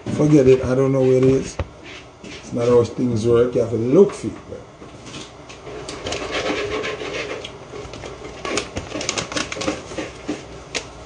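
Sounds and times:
plastic packet crinkling: 8.4 - 10.0.

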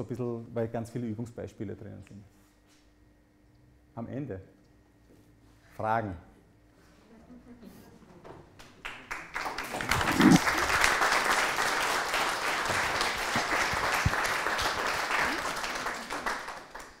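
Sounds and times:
audience applauding: 8.6 - 17.0.

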